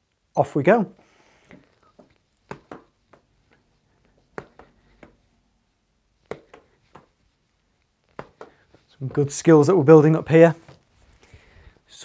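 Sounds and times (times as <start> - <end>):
fist tapping small ball: 2.0 - 3.3, 4.1 - 5.2, 6.2 - 7.2, 8.0 - 8.7.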